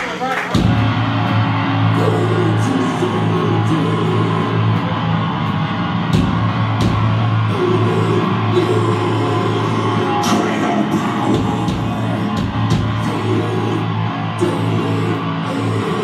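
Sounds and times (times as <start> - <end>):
drum and cymbal hits: 0.5 - 2.2, 5.4 - 8.6, 10.2 - 13.4
heavy metal band playing live: 0.5 - 16.0.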